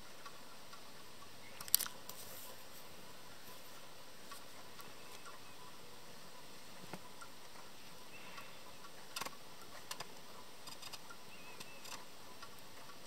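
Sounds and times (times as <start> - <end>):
steady hiss: 0.0 - 13.0
bird cracking seeds clicks: 1.6 - 2.0.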